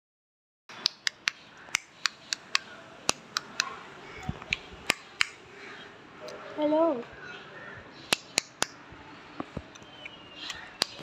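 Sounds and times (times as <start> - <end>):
sharp clicks: 0.7 - 5.4, 8.1 - 8.8, 9.4 - 11.0.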